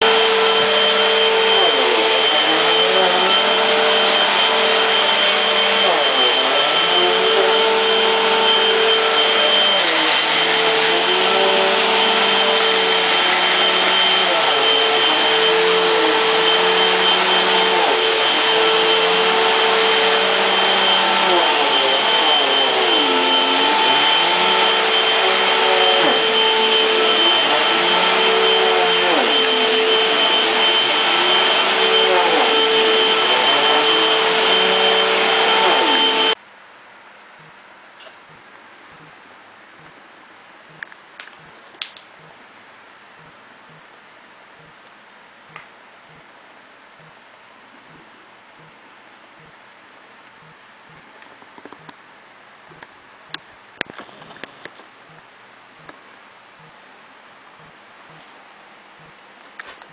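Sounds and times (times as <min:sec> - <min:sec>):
vacuum cleaner running on carpet: 0:00.0 - 0:36.4, 0:54.0 - 0:54.7.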